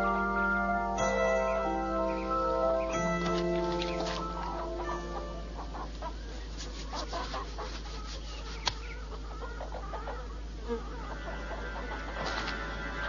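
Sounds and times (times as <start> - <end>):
music: 0.0 - 6.2, 11.2 - 13.0.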